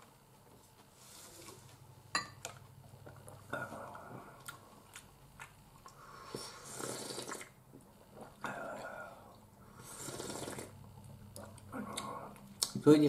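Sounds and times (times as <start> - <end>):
person slurping soup: 6.0 - 10.8.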